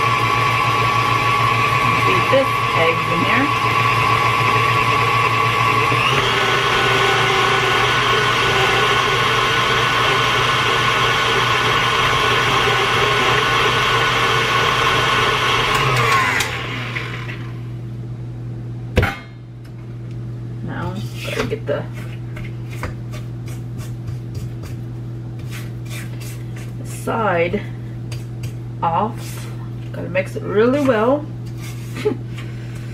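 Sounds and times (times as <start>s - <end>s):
electric mixer motor whine: 0.0s - 17.7s.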